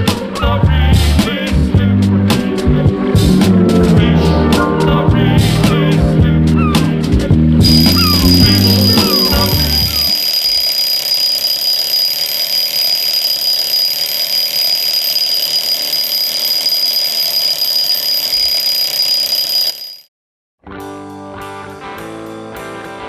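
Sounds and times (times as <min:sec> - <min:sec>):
high-pitched whine: 0:01.3 - 0:07.0, 0:07.6 - 0:20.0.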